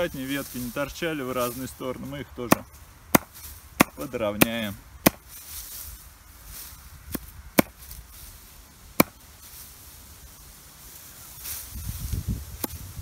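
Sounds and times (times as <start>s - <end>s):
hatchet chopping twigs on wood: 2.4s - 5.7s, 7.0s - 8.0s, 8.8s - 9.4s, 12.5s - 12.9s.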